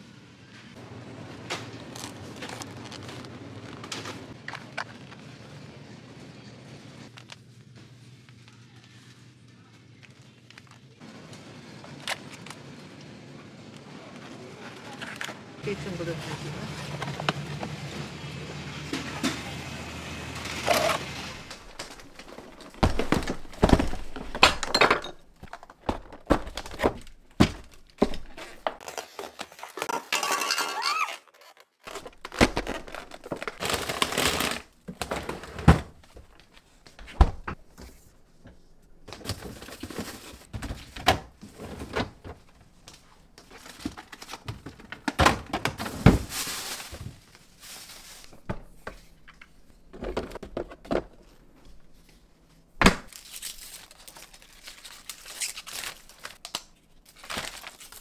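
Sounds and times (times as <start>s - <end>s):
dishes and pots clattering: 29.9s - 31.0s.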